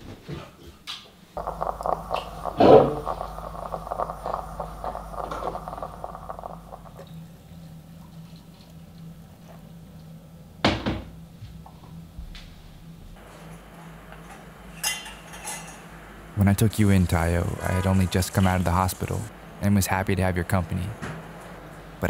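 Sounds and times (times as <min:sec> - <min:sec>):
moka pot gurgling and sputtering: 0:01.4 - 0:07.5, 0:16.4 - 0:19.3.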